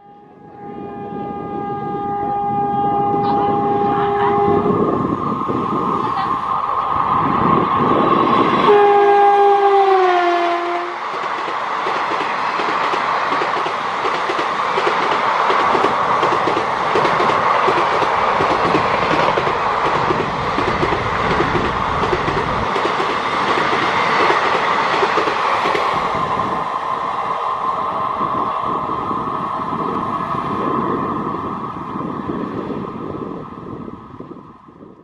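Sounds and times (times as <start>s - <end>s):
two-tone locomotive horn: 0.0s - 5.0s, 8.6s - 11.0s
train wheels clattering on track: 10.6s - 26.4s.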